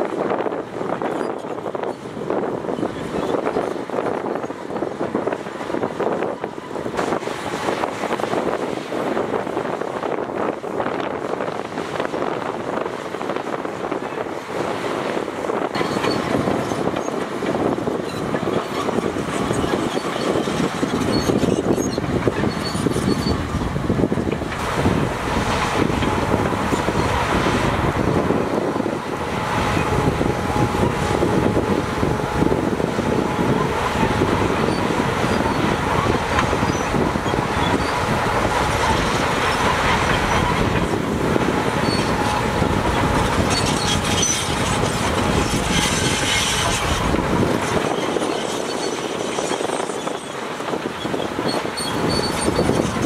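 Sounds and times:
bulldozer diesel engine under load: 0.0 - 53.0
steel tracks clanking and squealing: 0.0 - 53.0
sharp squeaks: 19.5 - 23.4, 43.5 - 44.8, 51.0 - 52.9.

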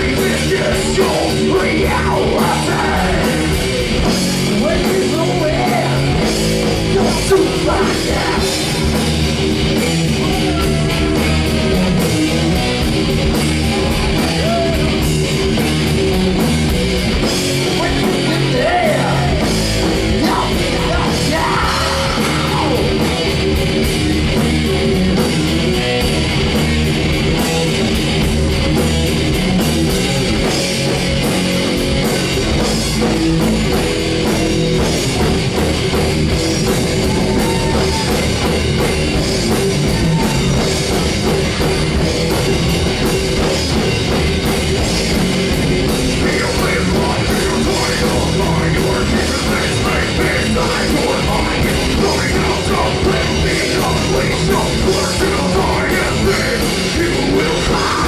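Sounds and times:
person singing: 0.0 - 6.3, 6.9 - 9.0, 17.7 - 23.1, 46.0 - 58.0
bass guitar: 0.0 - 58.0
distorted electric guitar: 0.0 - 58.0
drum kit: 0.0 - 58.0.

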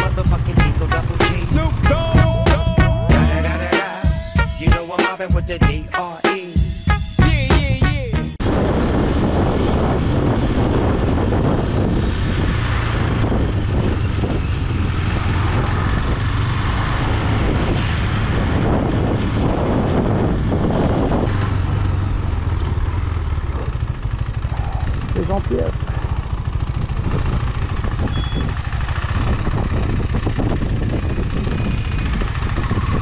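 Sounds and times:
motorcycle engine rumble: 0.0 - 4.8, 6.6 - 33.0
wind noise on microphone: 8.4 - 25.2, 25.8 - 33.0.

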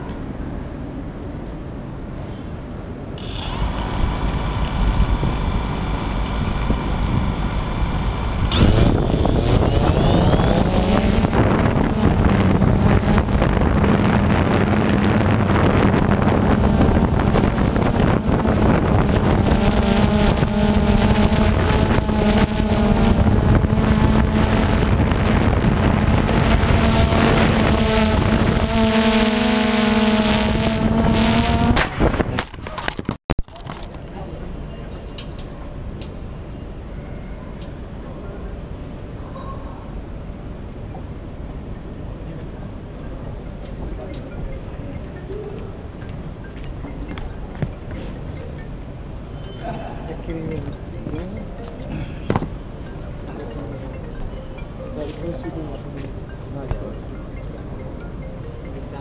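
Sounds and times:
drone motors whining: 3.2 - 32.4
drone propellers buzzing hum: 3.2 - 32.4, 42.8 - 49.5
wind rush: 3.5 - 33.2.

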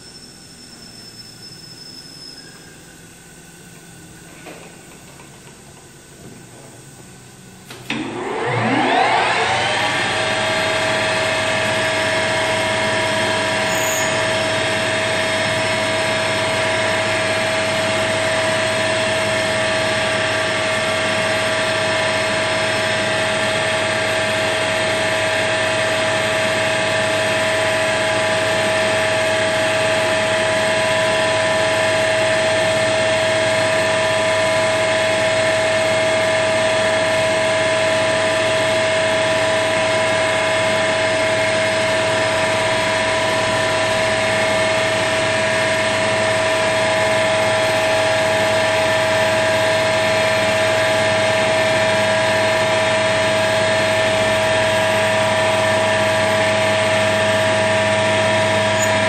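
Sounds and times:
lathe spinning with gear whine: 0.0 - 59.0
lathe start clunk: 7.6 - 14.9, 58.4 - 59.0.

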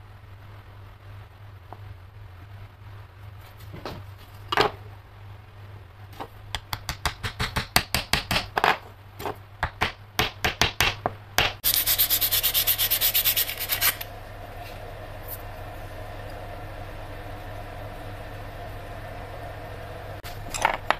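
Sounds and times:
sandpaper rasping on wood: 11.6 - 14.0.

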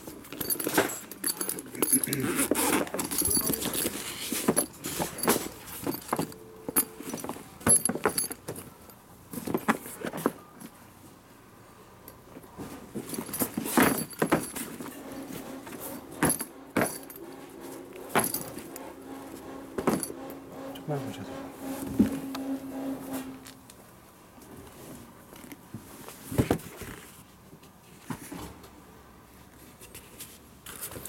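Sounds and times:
zipper pulls clinking: 0.3 - 8.5.

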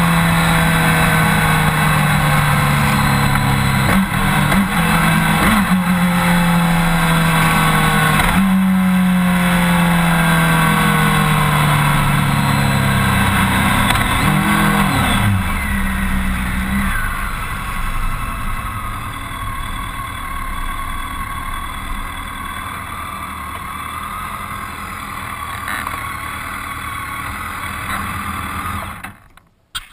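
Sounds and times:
tyre noise: 0.0 - 8.8
motorcycle engine: 0.0 - 29.9.

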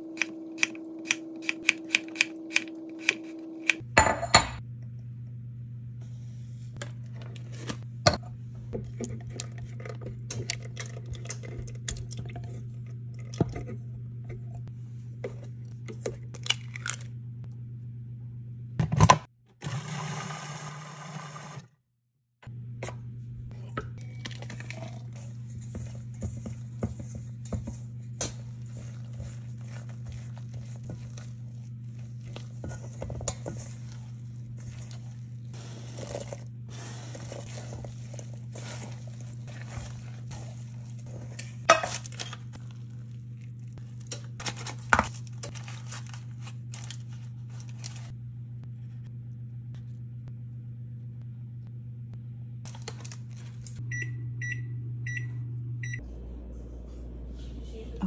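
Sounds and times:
steady low hum: 22.4 - 58.0
spatula scraping steel bowl: 25.2 - 42.4.

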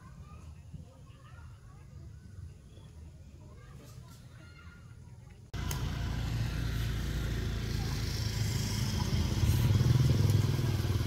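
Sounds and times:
engine running: 5.6 - 11.0.

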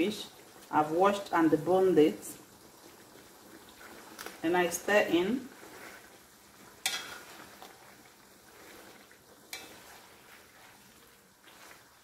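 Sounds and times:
faint sizzling: 0.0 - 12.0
spatula stirring in a pan: 2.4 - 12.0.

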